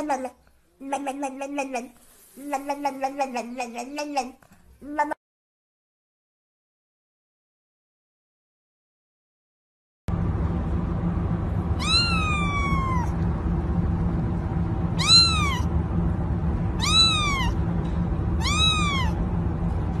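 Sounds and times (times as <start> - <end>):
low background hum: 0.0 - 5.2, 10.1 - 20.0
kitten meowing: 11.8 - 13.1, 15.0 - 15.7, 16.8 - 17.6, 18.4 - 19.2.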